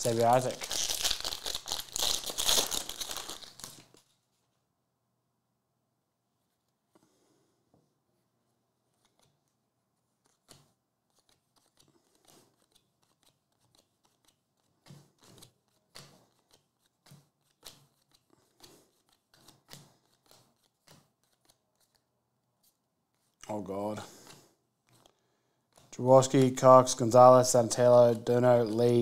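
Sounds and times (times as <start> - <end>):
cards sliding and flicking: 9.0 - 9.5, 10.2 - 23.4, 24.1 - 27.4.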